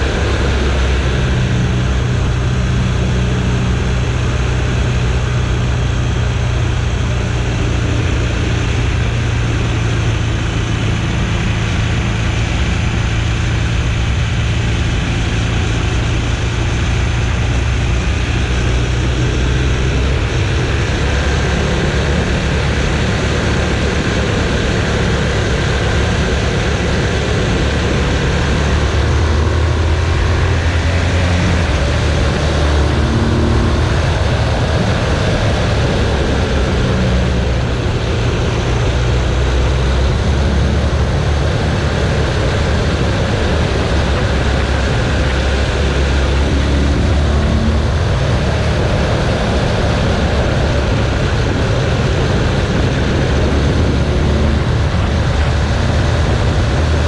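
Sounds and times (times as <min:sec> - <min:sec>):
motorcycle engine running: 0:00.0 - 0:57.0
wind and road noise: 0:00.0 - 0:57.0.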